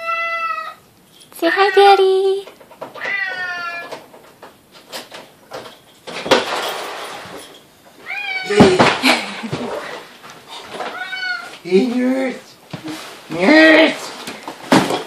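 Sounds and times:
cat meowing: 0.0s - 0.8s, 3.0s - 4.0s, 8.0s - 8.7s, 10.9s - 11.6s.

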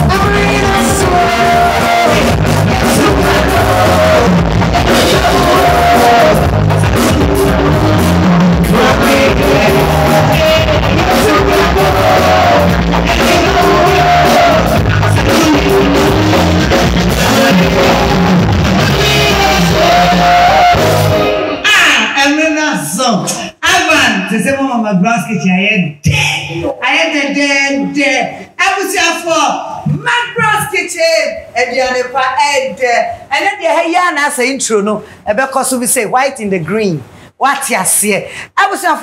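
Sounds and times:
woman singing into microphone: 0.0s - 7.9s
drum kit: 0.0s - 21.6s
guitars: 0.0s - 21.7s.

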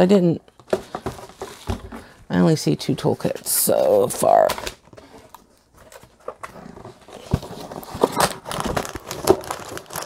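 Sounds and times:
plastic packaging crinkling: 4.0s - 10.0s.

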